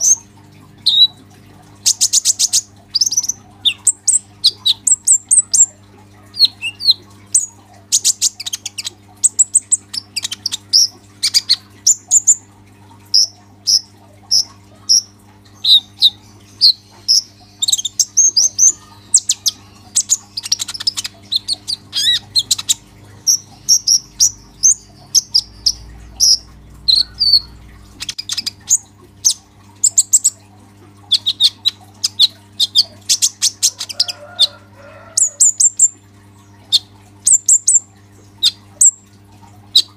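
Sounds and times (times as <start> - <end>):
faint steady hum: 0.0 - 39.9
bird singing chattering song: 1.8 - 12.4, 13.1 - 30.4.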